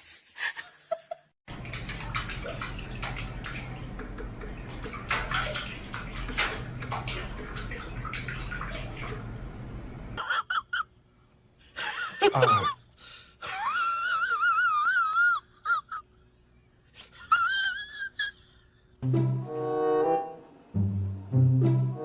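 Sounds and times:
water splashing in a metal sink: 1.5 - 10.2.

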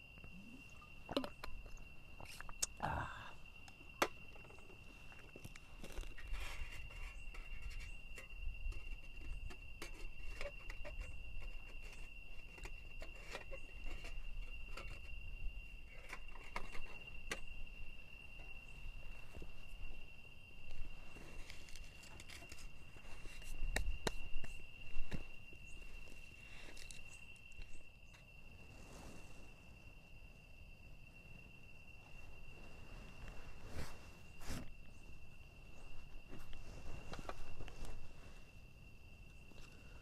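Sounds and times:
night insects droning: 0.0 - 40.0
camp gear clicks and rustles: 3.6 - 28.3, 35.8 - 38.5.

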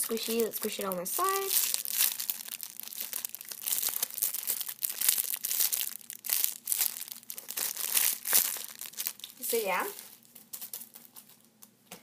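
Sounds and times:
plastic wrapper crinkling: 0.0 - 11.8.

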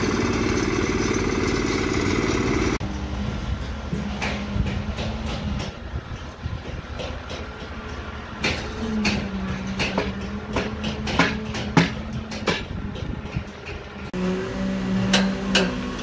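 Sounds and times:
machine engine hum: 0.0 - 5.0
metal rebar clanking: 3.6 - 14.1, 15.0 - 16.0.

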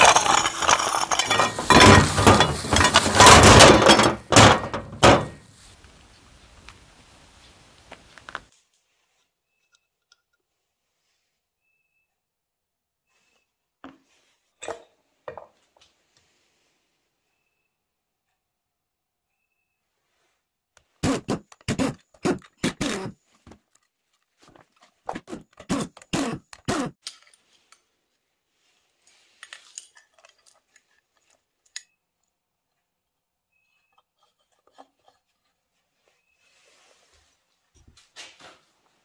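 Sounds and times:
metallic clanks and knocks: 0.0 - 5.4.

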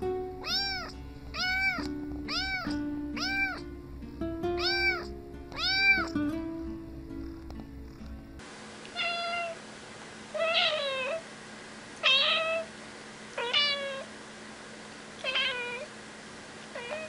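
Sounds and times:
cat meowing: 0.4 - 3.7, 4.6 - 6.2, 8.9 - 9.6, 10.3 - 11.2, 12.0 - 12.7, 13.4 - 14.1, 15.2 - 15.9, 16.7 - 17.0.

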